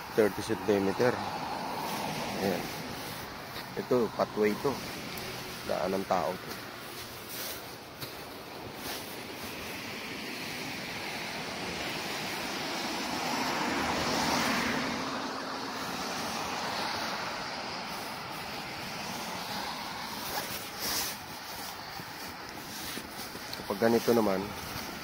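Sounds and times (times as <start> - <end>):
cars rushing on road: 0.0 - 25.0
vehicle passing: 0.0 - 25.0.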